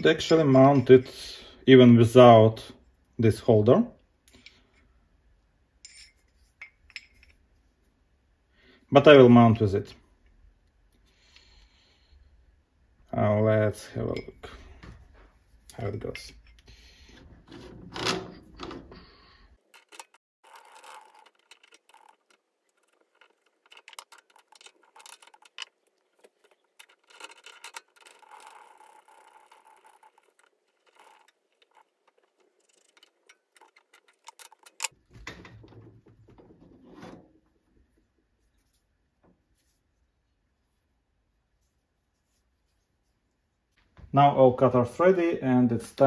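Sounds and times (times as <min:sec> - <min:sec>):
light metal scraping: 0:13.9 - 0:35.0.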